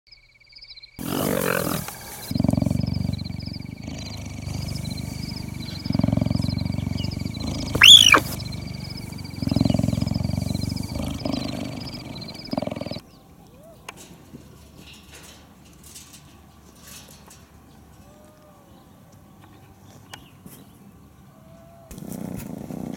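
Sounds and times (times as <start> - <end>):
big cat growling and roaring: 1.0 - 13.0
loud high screech: 7.8 - 8.4.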